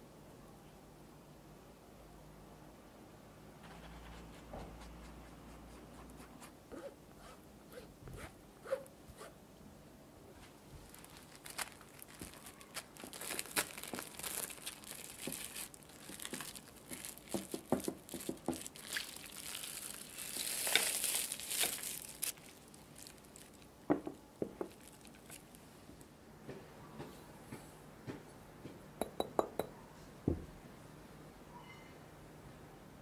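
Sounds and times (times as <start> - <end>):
cling film crinkling: 10.4 - 23.7, 24.6 - 25.6.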